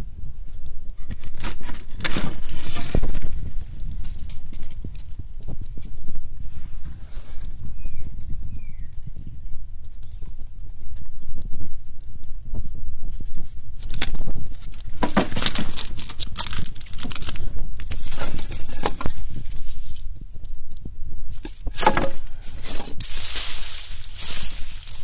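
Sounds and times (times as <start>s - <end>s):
crackling and rustling of dry leaves: 0.0s - 25.0s
loud hiss: 23.0s - 25.0s.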